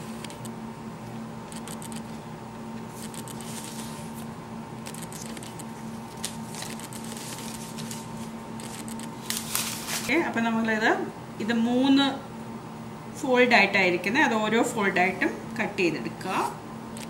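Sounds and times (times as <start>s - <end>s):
steady low hum: 0.0s - 17.0s
paper rustling: 2.9s - 10.1s.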